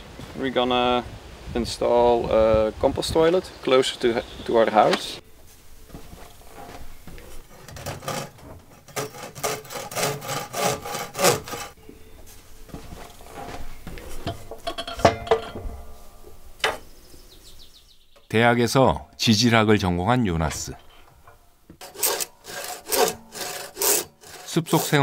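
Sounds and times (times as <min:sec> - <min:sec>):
hand tool rasping on wood: 0:05.9 - 0:11.8, 0:21.8 - 0:25.0.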